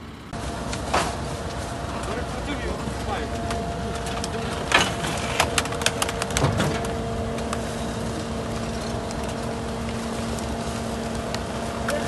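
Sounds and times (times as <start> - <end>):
garbage truck engine hum: 0.0 - 12.0
sharp cracks and snaps: 5.2 - 7.7.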